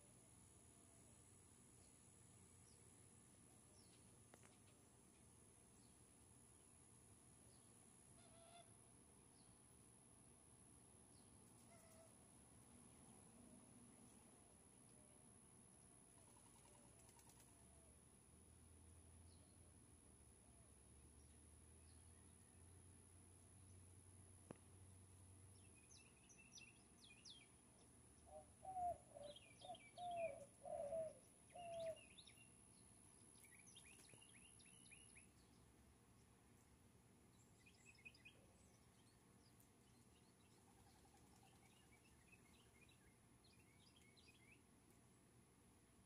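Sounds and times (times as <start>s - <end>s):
small birds chirping: 25.5s - 44.7s
dove cooing: 28.3s - 32.0s.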